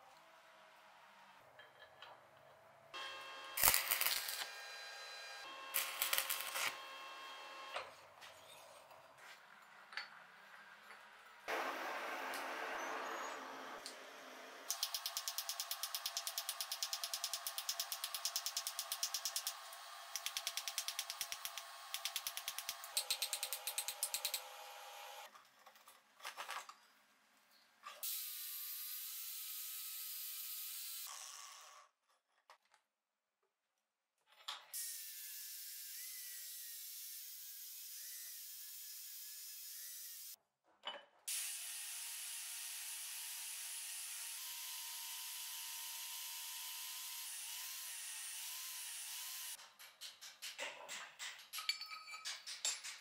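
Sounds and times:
angle grinder grinding steel: 3.6 - 6.9.

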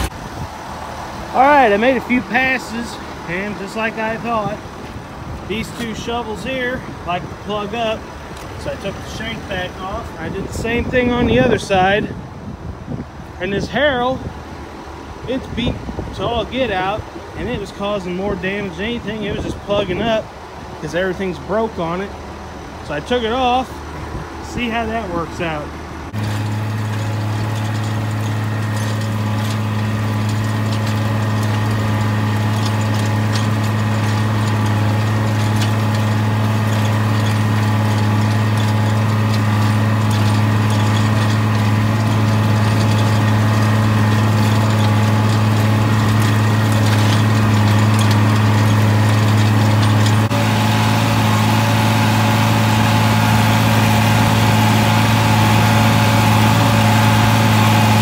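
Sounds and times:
tractor engine running under load: 0.0 - 58.0.

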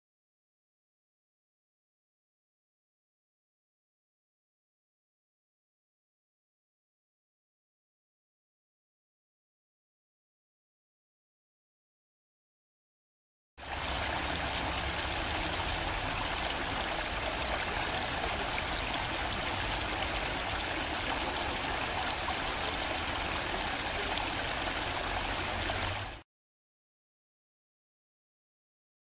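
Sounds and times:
stream trickling over rocks: 13.6 - 26.2
high chirps: 15.2 - 15.9.

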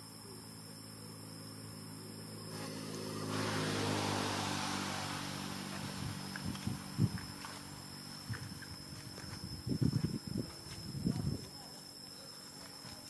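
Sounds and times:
motor engine running: 1.6 - 9.3.

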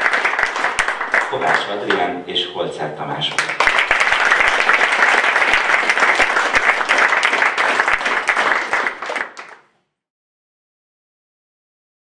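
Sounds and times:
audience applauding: 0.0 - 2.0, 3.3 - 9.7.

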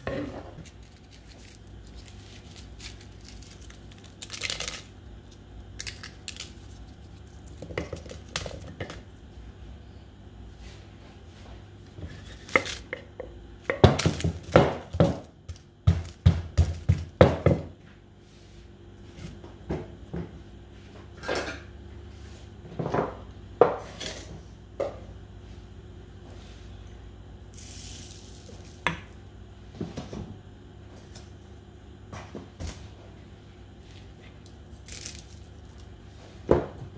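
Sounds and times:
wooden pestle pounding in mortar: 13.7 - 17.7.

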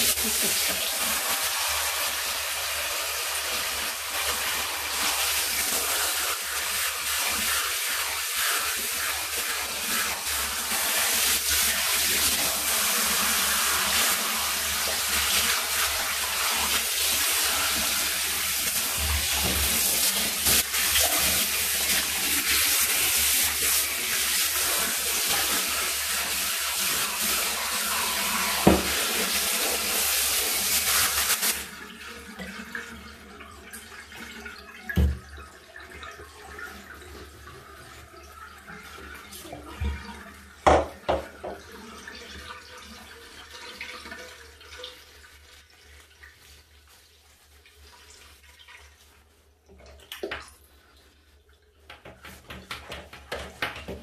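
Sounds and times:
shower head spraying water: 0.0 - 31.7.

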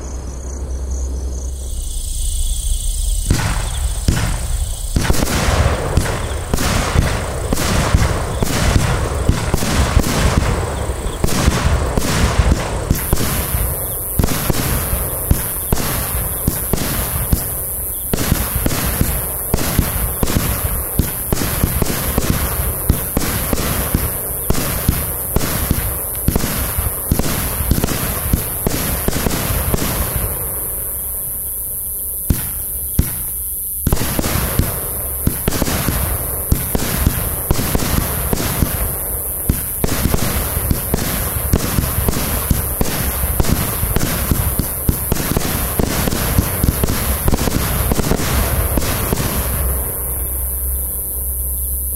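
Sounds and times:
firework bursts overhead: 1.2 - 51.9
firework launch thumps: 2.8 - 10.6, 32.3 - 50.0.

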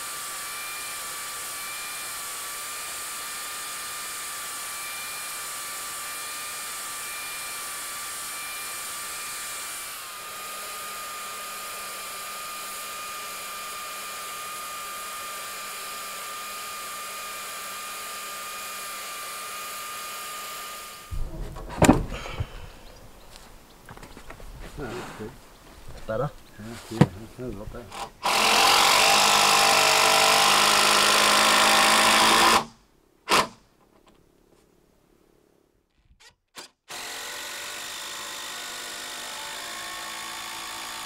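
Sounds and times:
knocks: 21.1 - 22.6
power tool motor whining: 27.9 - 32.7, 36.2 - 41.0.

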